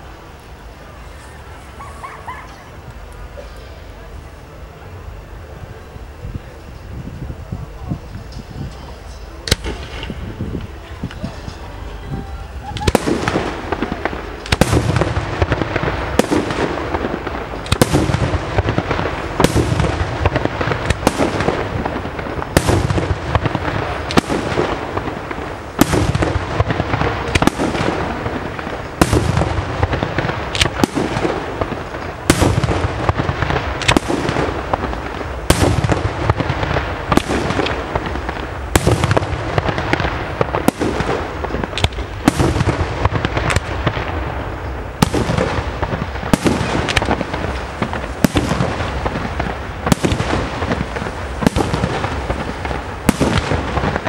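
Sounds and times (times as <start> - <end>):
firework crackle and rumble: 0.0 - 54.0
firework shells bursting: 12.5 - 54.0.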